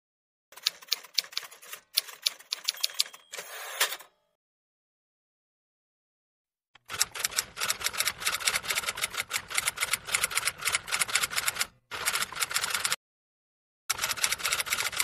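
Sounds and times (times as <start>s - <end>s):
keyboard typing clicks: 0.6s - 3.3s.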